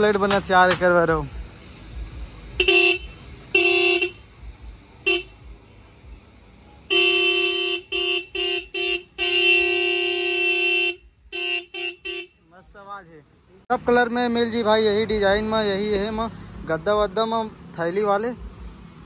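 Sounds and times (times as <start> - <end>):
vehicle horn toots: 2.6 - 4.3, 5.0 - 5.4, 6.8 - 12.5.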